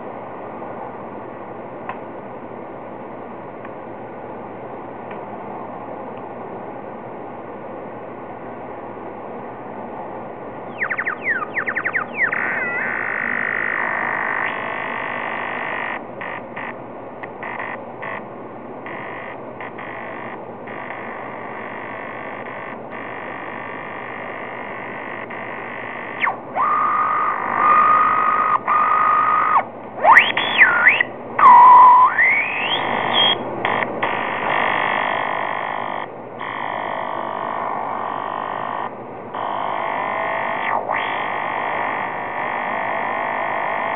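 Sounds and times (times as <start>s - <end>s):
noisy hiss: 0.0s - 43.9s
synthesizer pitch wobbles and glides: 10.7s - 16.0s, 23.9s - 33.8s.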